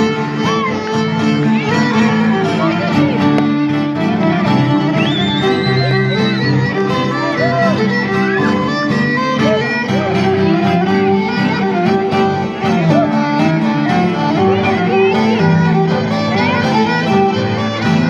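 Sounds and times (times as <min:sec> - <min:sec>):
violin playing ornamented melody: 0:00.0 - 0:18.0.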